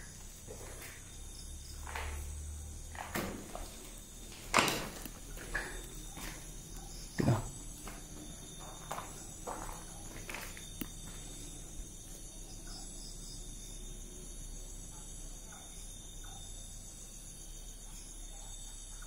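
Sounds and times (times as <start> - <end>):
footsteps: 0.0 - 11.8
insects chirping: 0.0 - 19.0.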